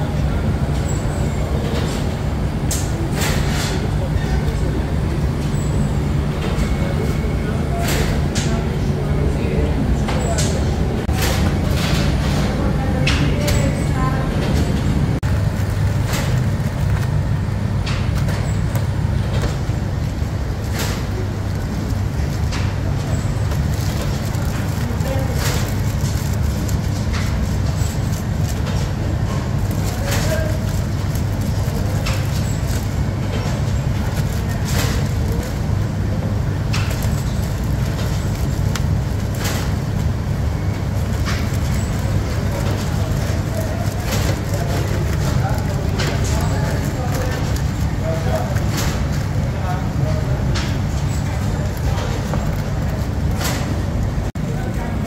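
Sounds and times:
low machine rumble: 0.0 - 55.0
plastic bags crinkling: 15.2 - 54.1.

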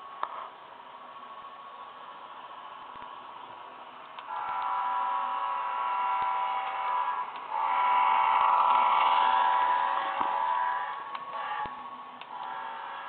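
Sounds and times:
model train motor whine: 4.2 - 13.0.

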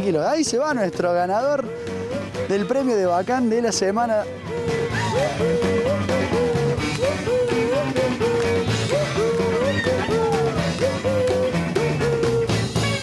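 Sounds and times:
rock drum beat: 4.2 - 13.0.

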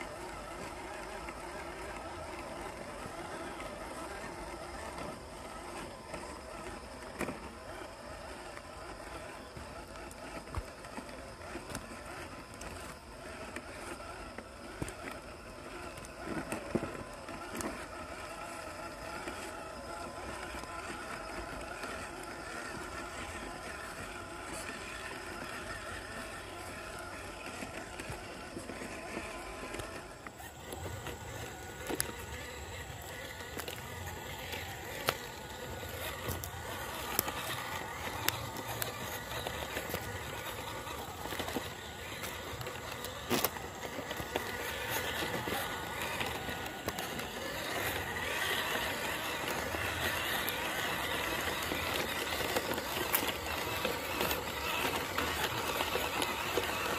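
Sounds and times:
electric motor whining: 0.0 - 56.9.

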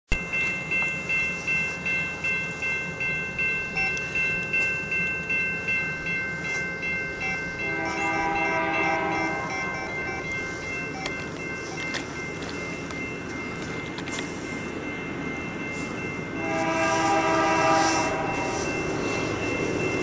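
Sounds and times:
crossing bell ringing: 0.1 - 20.0
locomotive horn chord: 7.6 - 10.2, 16.4 - 18.7.

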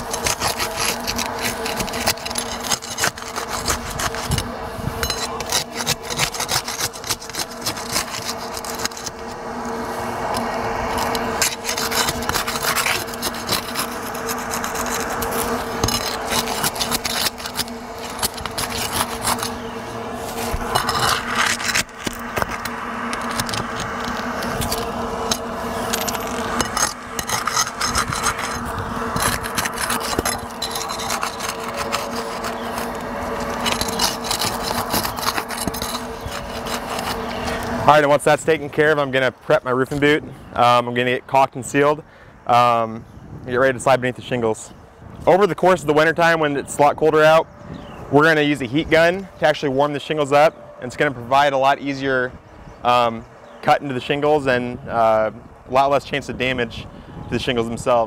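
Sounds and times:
metal bar scraping shingles: 0.0 - 40.8.

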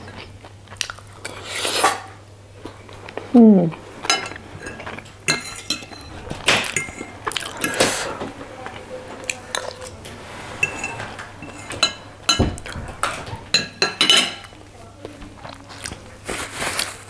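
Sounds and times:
cutlery scraping on plate: 4.0 - 8.4, 9.1 - 14.6.

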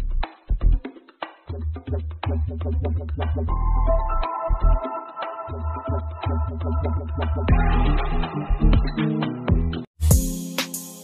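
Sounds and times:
electronic dance music: 3.5 - 11.0.

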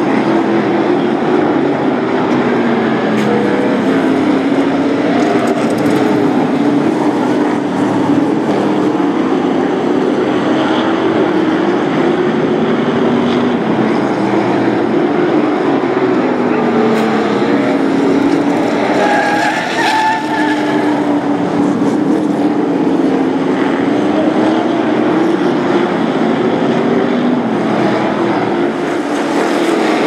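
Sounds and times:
race truck engines: 0.0 - 30.0.

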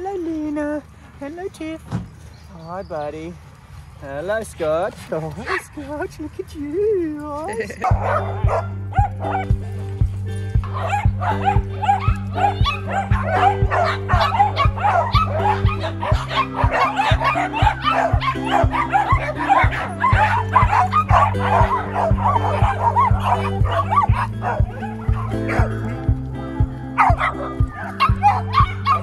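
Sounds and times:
small dogs barking and yipping: 5.4 - 5.8, 7.6 - 29.0
music with steady beat: 7.9 - 29.0.

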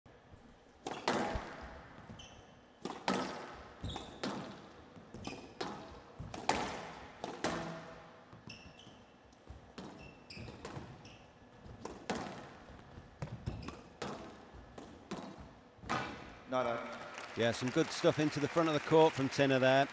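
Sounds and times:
shoes squeaking on court floor: 0.6 - 16.4
squash ball hits echoing: 0.8 - 2.2, 2.8 - 8.3, 11.6 - 17.1.

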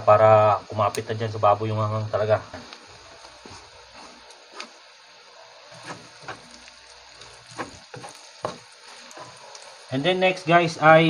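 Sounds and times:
faint sizzle: 0.0 - 11.0
spatula tapping and scraping wok: 5.8 - 9.6.

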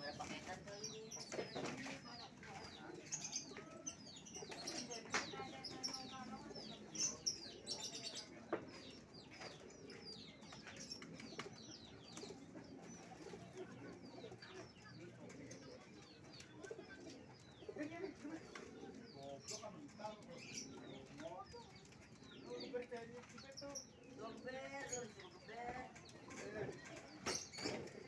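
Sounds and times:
pigeons cooing: 2.4 - 22.8.

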